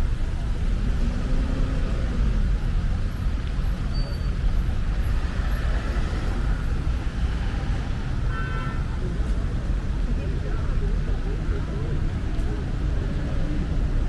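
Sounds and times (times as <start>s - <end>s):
cars idling and pulling away: 0.0s - 8.2s.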